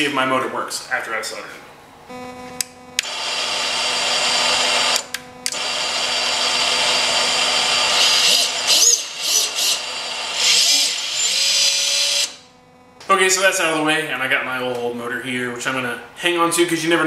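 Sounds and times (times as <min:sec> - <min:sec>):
steady electronic humming: 0:00.1 - 0:16.2
drone motors whirring: 0:02.1 - 0:13.0.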